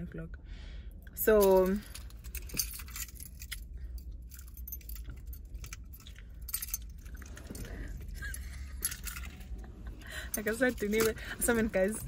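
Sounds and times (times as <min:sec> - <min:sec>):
steady low hum: 0:00.0 - 0:12.0
small metal objects jingling: 0:01.2 - 0:12.0.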